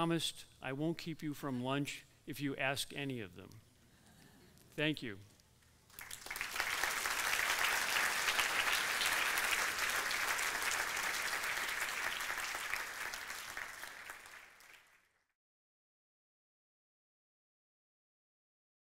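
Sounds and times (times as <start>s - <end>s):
audience applauding: 5.9s - 15.2s.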